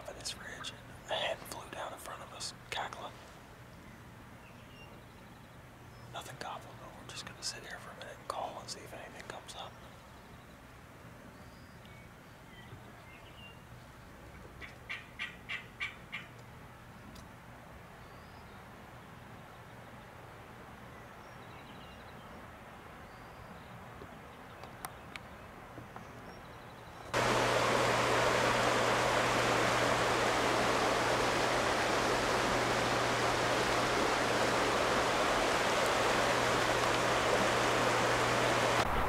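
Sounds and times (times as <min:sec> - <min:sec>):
creek water rushing: 0:27.2 - 0:39.0.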